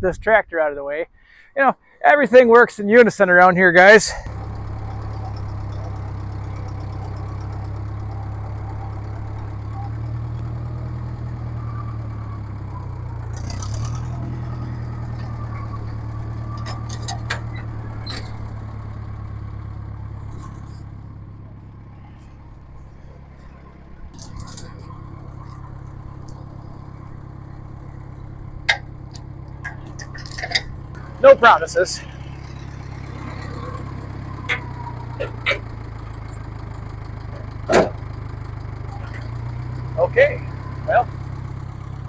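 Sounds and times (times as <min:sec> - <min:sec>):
tractor engine running: 0:00.0 - 0:42.0
sharp metallic clanks: 0:24.1 - 0:26.8, 0:28.6 - 0:31.3.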